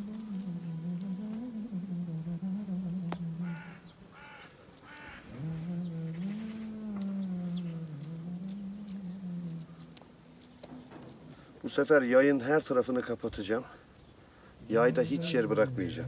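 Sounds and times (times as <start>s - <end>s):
low wavering hum: 0.0s - 4.0s, 5.2s - 11.5s
bird calling: 3.0s - 11.6s.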